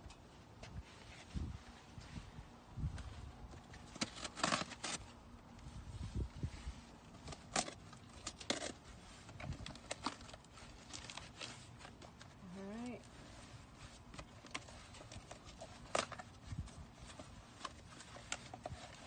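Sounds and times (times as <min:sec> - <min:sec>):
packing tape being slit: 0:03.8 - 0:05.1, 0:07.2 - 0:12.4, 0:14.1 - 0:19.0.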